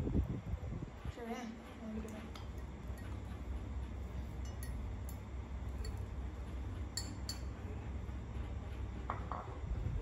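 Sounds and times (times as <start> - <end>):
metal spoon clinking in a mug: 4.4 - 6.1, 7.0 - 7.5.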